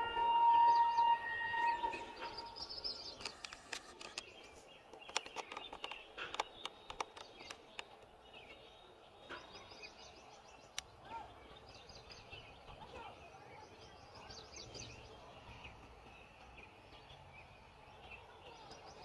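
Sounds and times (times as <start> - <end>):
locomotive horn: 0.0 - 2.6
birds chirping: 0.0 - 19.0.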